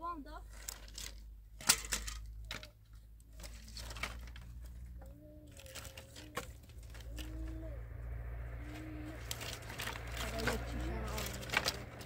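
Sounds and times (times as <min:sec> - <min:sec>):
firewood sticks knocking together: 0:09.2 - 0:12.0.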